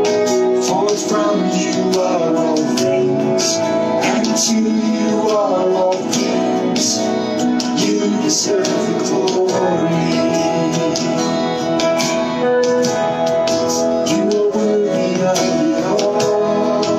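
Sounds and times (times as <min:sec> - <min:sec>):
live worship band with guitar: 0:00.0 - 0:16.9
singing: 0:14.1 - 0:16.9.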